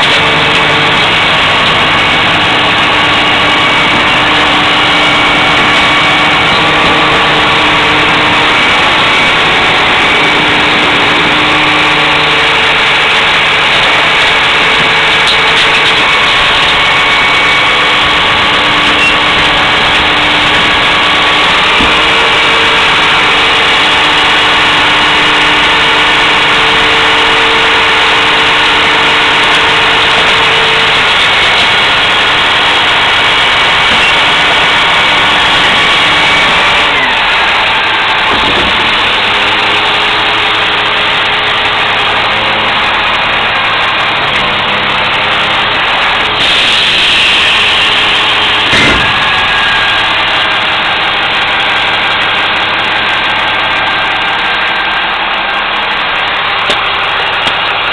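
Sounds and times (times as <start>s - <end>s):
garbage truck engine running: 0.0s - 57.9s
sharp knocks: 38.2s - 39.5s, 48.6s - 49.4s.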